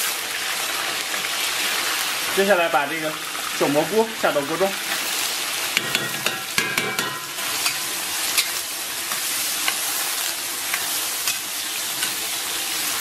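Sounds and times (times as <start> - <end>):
food sizzling in hot oil: 0.0 - 13.0
metal spatula scraping a wok: 5.8 - 9.4.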